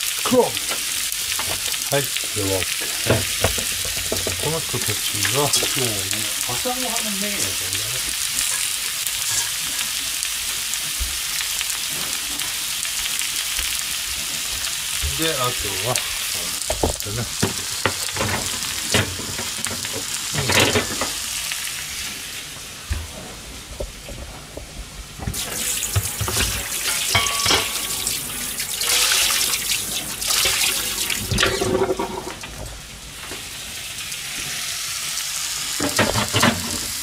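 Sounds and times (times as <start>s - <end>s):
water running from a tap: 0.0s - 21.7s, 25.3s - 32.6s
kitchen clatter: 0.6s - 1.8s, 2.6s - 7.6s, 8.4s - 10.0s, 15.8s - 21.3s, 25.2s - 33.4s, 35.8s - 37.0s.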